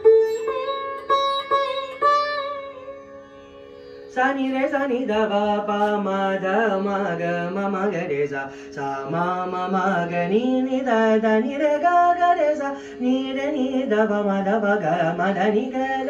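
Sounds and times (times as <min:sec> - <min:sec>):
man singing ornamented melody: 0:04.1 - 0:16.0.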